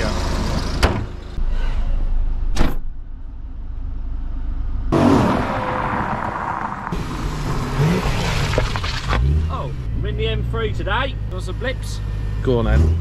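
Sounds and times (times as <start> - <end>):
car engine driving slowly: 3.2 - 13.0.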